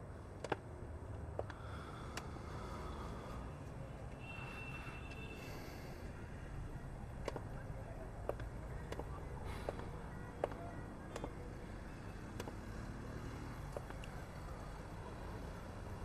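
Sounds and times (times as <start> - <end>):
low traffic rumble: 0.0 - 16.0
hard-soled footsteps on pavement: 0.4 - 2.3, 7.2 - 11.6, 12.3 - 12.9, 13.6 - 14.2.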